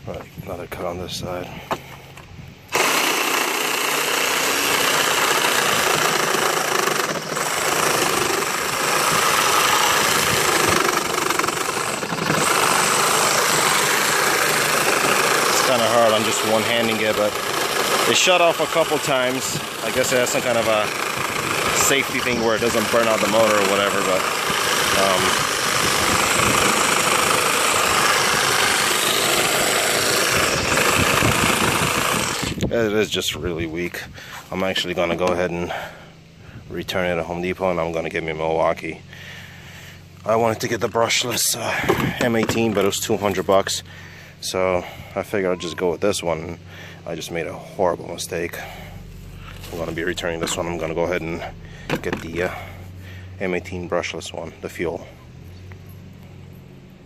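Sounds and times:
reciprocating saw cutting wood: 2.7 - 32.8, 39.5 - 45.0, 46.6 - 53.4.

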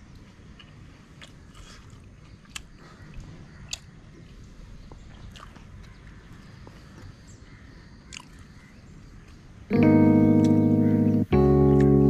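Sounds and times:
person chewing crunchy food: 0.5 - 3.8, 5.2 - 5.9.

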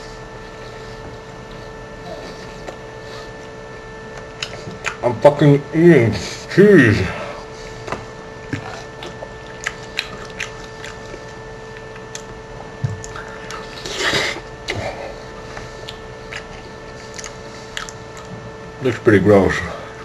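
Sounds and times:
wet chewing and smacking: 0.3 - 5.0, 7.8 - 19.1.

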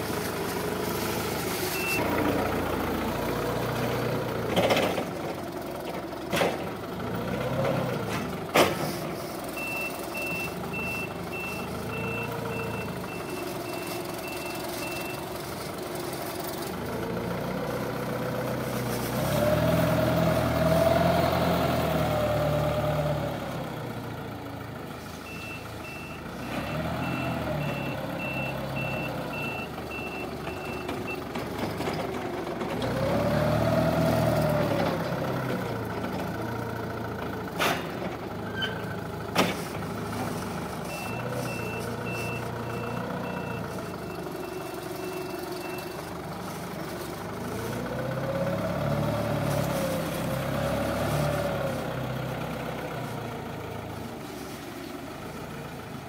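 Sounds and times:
forklift engine revving: 0.0 - 55.9
reversing alarm beeping: 9.6 - 15.3, 25.2 - 31.2, 40.8 - 46.1.

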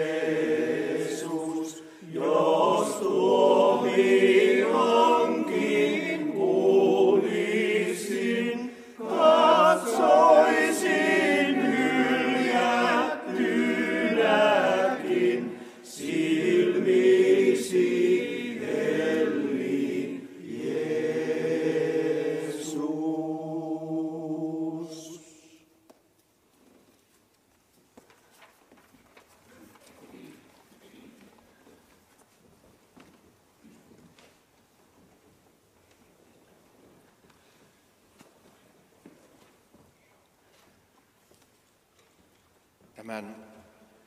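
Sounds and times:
men's choir singing a cappella: 0.0 - 25.7.

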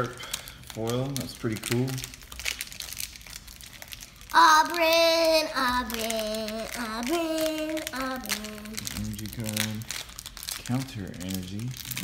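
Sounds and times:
foil wrapper crinkling: 0.0 - 12.0
child singing wordlessly: 4.3 - 8.9.

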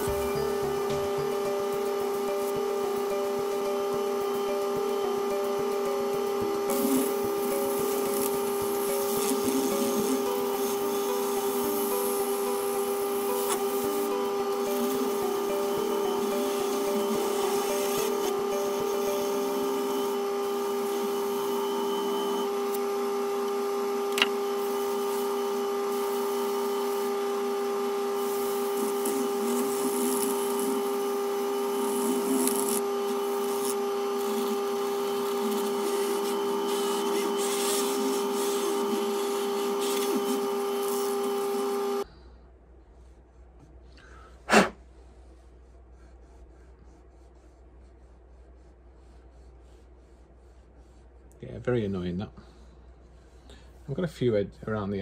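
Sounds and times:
lathe motor whine: 0.0 - 42.1
sanding hiss: 24.6 - 42.0.

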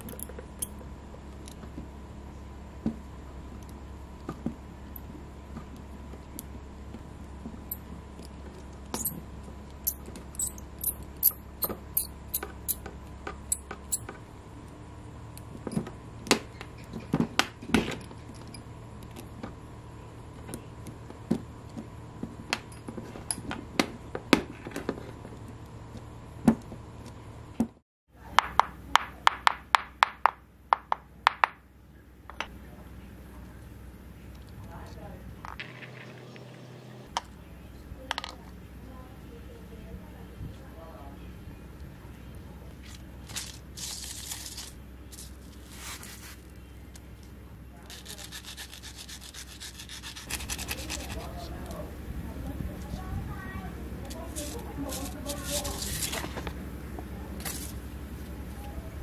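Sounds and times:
pliers and wire clicking on tile: 8.9 - 9.2, 9.8 - 12.9.

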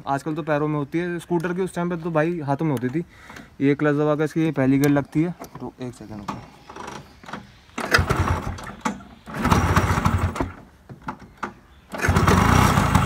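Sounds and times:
scooter engine starting: 7.8 - 13.0.

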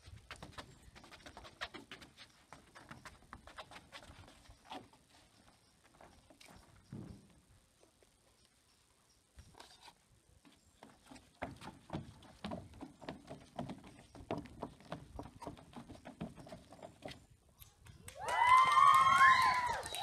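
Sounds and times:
children running on wooden decking: 10.8 - 17.2, 18.0 - 20.0.

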